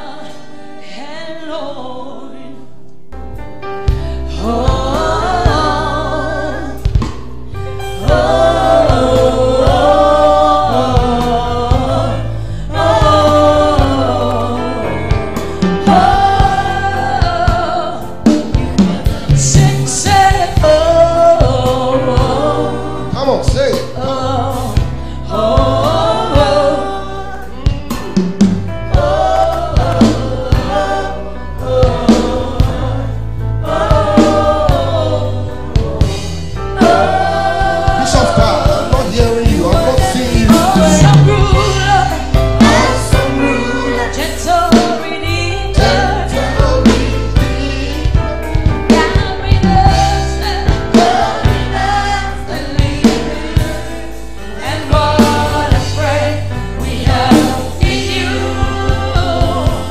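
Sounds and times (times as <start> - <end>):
band with bass and drums: 3.4 - 59.9
backing singers: 7.9 - 59.9
woman singing lead: 33.7 - 59.9.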